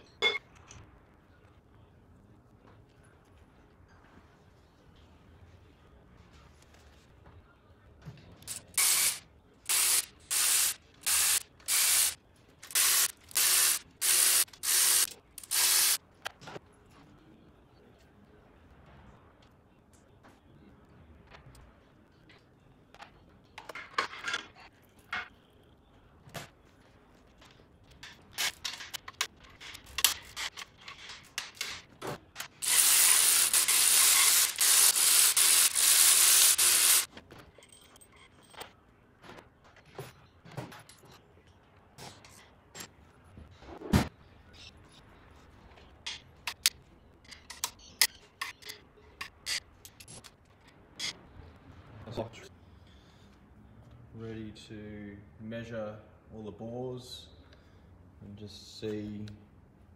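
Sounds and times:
ratchet wrench clicking: 0:08.5 - 0:16.0, 0:32.6 - 0:37.1.

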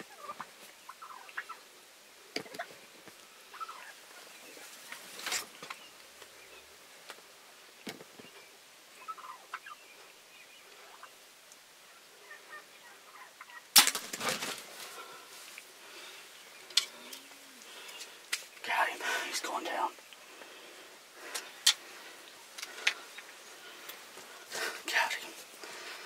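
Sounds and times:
turkeys gobbling: 0:00.0 - 0:01.7, 0:02.4 - 0:02.8, 0:03.4 - 0:05.4, 0:09.0 - 0:09.9, 0:10.7 - 0:11.2, 0:11.9 - 0:18.0
soft turkey calls: 0:00.0 - 0:06.7, 0:08.2 - 0:26.0.

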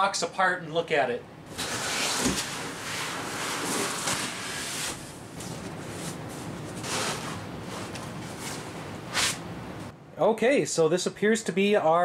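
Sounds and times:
cardboard scraping and rustling: 0:01.5 - 0:09.4.

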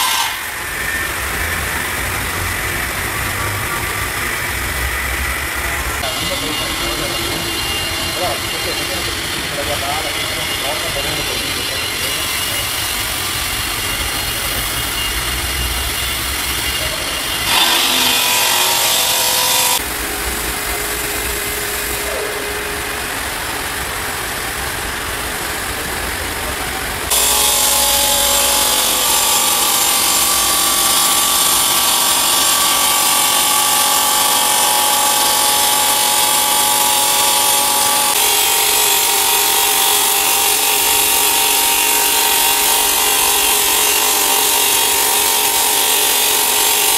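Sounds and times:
saw blade grinding stone: 0:00.0 - 0:01.9, 0:06.0 - 0:19.9, 0:27.1 - 0:46.9
machine running noise: 0:00.0 - 0:46.9.

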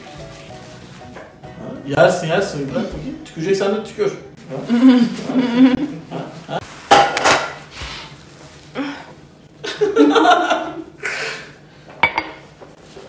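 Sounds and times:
man chuckling: 0:04.5 - 0:06.6.

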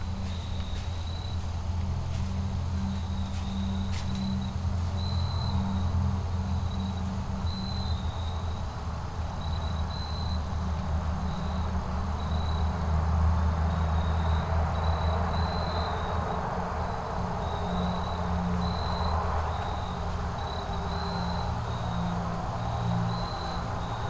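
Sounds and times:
steady low rumble: 0:00.0 - 0:13.6
crickets chirping: 0:00.0 - 0:24.0.

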